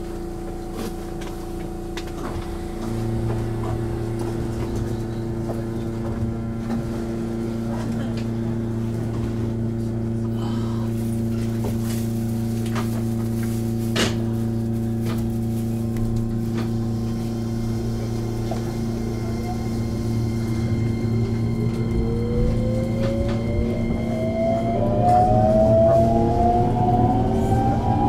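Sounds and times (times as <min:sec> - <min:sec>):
inverter whine rising in pitch: 0:20.2 - 0:28.0.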